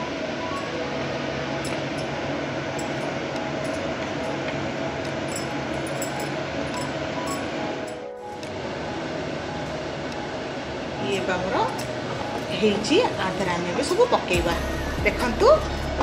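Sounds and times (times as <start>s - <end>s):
light clinks: 5.2s - 8.0s.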